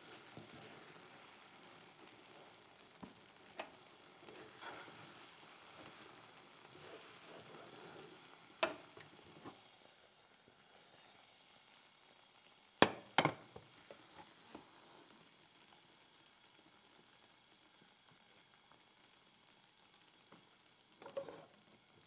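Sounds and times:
wooden spatula stirring sauce: 0:04.3 - 0:09.6
pan clanking on burner grate: 0:08.6 - 0:09.6, 0:12.8 - 0:13.6.

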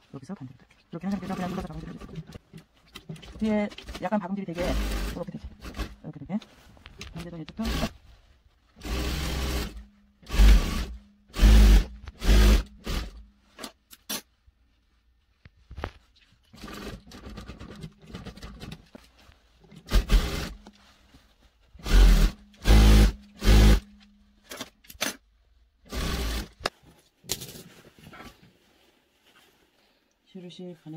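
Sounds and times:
sewing machine stitching: 0:01.1 - 0:02.4, 0:03.0 - 0:06.0, 0:07.2 - 0:07.9, 0:08.8 - 0:13.2, 0:16.5 - 0:18.8, 0:19.8 - 0:20.6, 0:21.8 - 0:23.8, 0:25.9 - 0:26.7.

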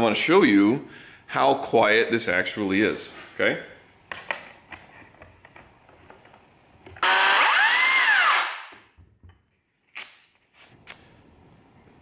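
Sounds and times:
electric chainsaw whining: 0:07.0 - 0:08.6.

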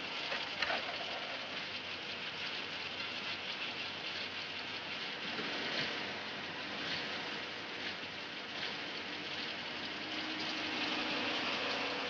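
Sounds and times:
computer cooling fans whirring: 0:00.0 - 0:12.0.

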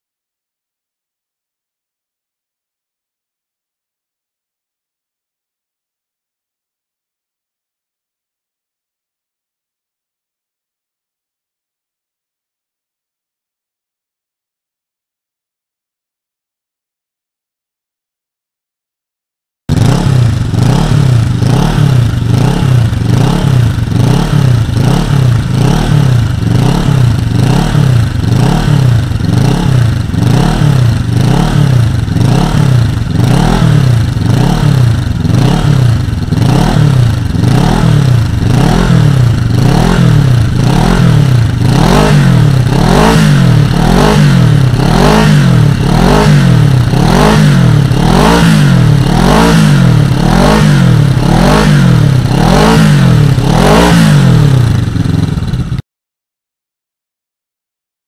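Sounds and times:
motorcycle engine revving: 0:19.7 - 0:55.8.

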